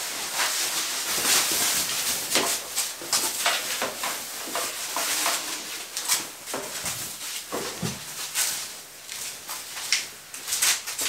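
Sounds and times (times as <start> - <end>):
plastic sheeting rustling and crackling: 0.0 - 11.0.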